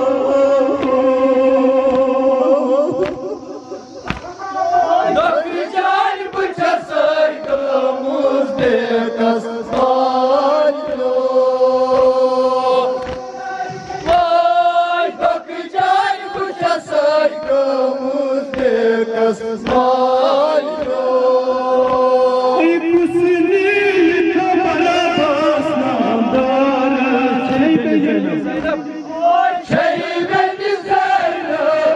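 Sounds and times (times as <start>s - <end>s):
group of voices joining in: 0.0s - 6.0s
men chanting through microphones: 0.0s - 31.9s
hand slaps on chests: 0.8s - 1.0s, 1.9s - 2.1s, 2.9s - 3.4s, 4.0s - 4.4s, 9.7s - 10.0s, 11.9s - 12.2s, 13.0s - 13.4s, 14.0s - 14.3s, 18.5s - 18.8s, 19.6s - 20.0s, 20.7s - 21.2s, 21.8s - 22.2s, 28.6s - 28.8s.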